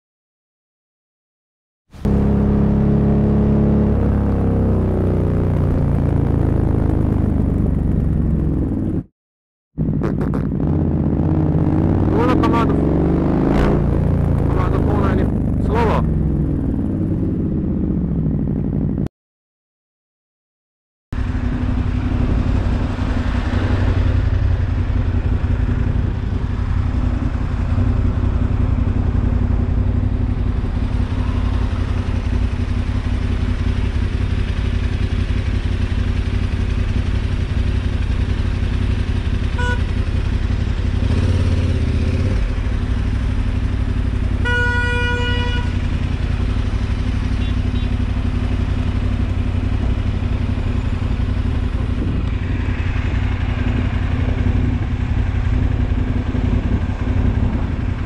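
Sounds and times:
road and wind noise: 0:01.9 - 0:09.1, 0:09.8 - 0:19.1, 0:21.1 - 0:58.0
motorcycle engine running: 0:02.0 - 0:09.1, 0:09.8 - 0:19.1, 0:21.2 - 0:58.0
horn tooting: 0:39.4 - 0:40.3, 0:44.3 - 0:46.4, 0:47.1 - 0:48.2.

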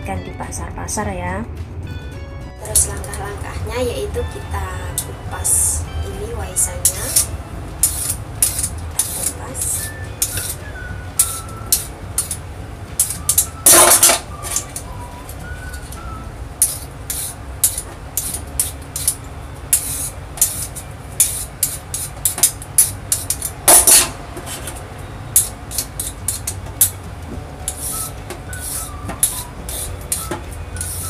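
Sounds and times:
low steady hum: 0:02.6 - 0:31.0
vegetable peeler scraping: 0:06.6 - 0:27.0, 0:27.6 - 0:31.0.

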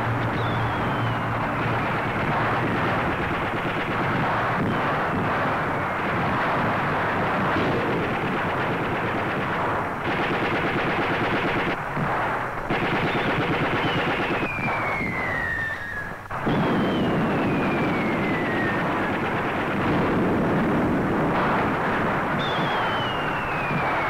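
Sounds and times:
machine-gun fire: 0:00.0 - 0:24.0
long falling whistles: 0:00.4 - 0:02.2, 0:13.8 - 0:18.8, 0:22.4 - 0:24.0.

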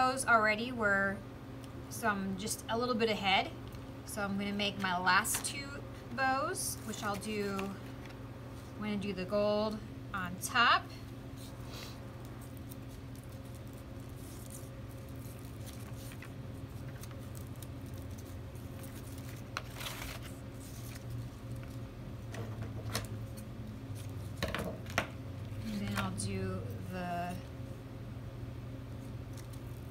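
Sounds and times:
steady low hum: 0:00.0 - 0:29.9
ribbon rustling: 0:06.7 - 0:08.8, 0:11.3 - 0:21.8.

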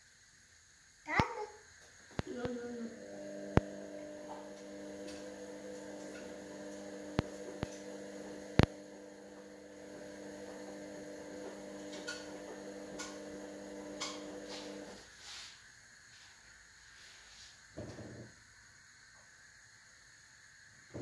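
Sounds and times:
electrical hum: 0:01.1 - 0:15.2.

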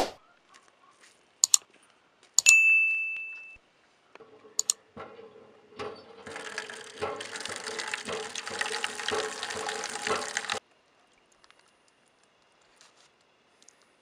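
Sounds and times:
mouse clicks: 0:01.4 - 0:01.6
bell-like ding: 0:02.5 - 0:03.6
water pouring onto vegetables: 0:06.2 - 0:10.6.

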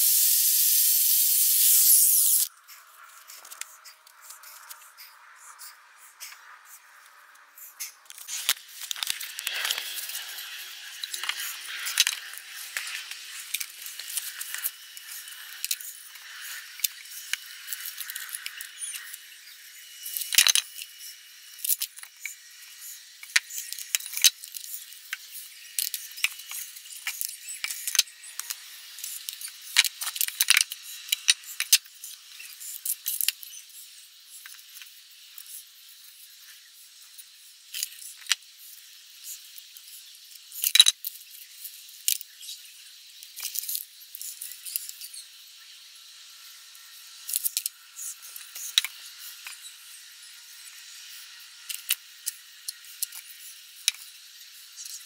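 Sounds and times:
small hard objects rattling: 0:08.1 - 0:18.6.

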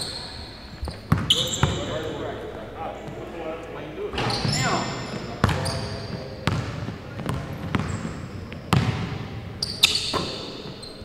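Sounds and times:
sneakers squeaking: 0:00.0 - 0:11.0
basketball bouncing on wooden floor: 0:00.8 - 0:01.8, 0:06.4 - 0:09.3.

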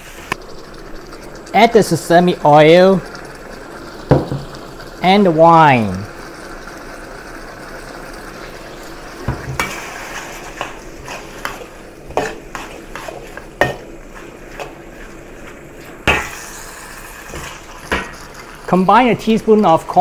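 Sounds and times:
liquid pouring: 0:00.0 - 0:20.0
sauce sizzling in a wok: 0:00.0 - 0:20.0
metal spatula scraping a wok: 0:09.5 - 0:18.6
spatula clanging on wok: 0:11.4 - 0:13.9.

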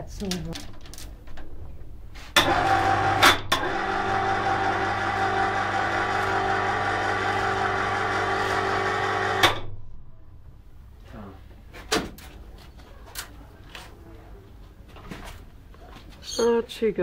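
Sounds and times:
electric hoist humming: 0:02.4 - 0:09.7.

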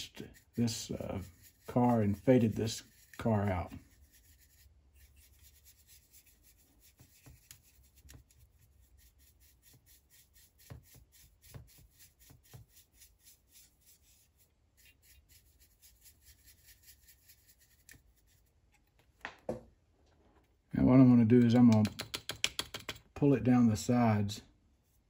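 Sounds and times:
soft brush rubbing plastic: 0:00.0 - 0:19.0.

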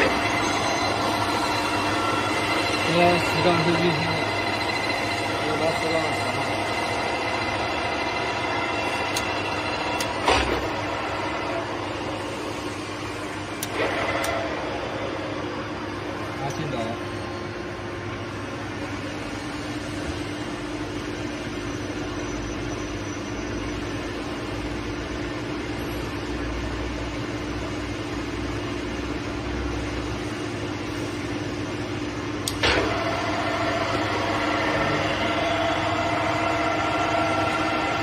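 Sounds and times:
lathe running hum: 0:00.0 - 0:38.0
sharp click: 0:32.4 - 0:32.8.

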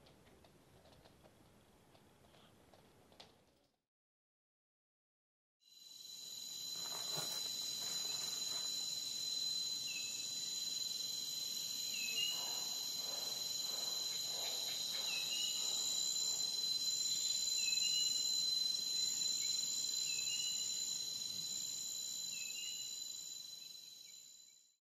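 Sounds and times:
high-pitched insect chorus: 0:05.7 - 0:24.7.

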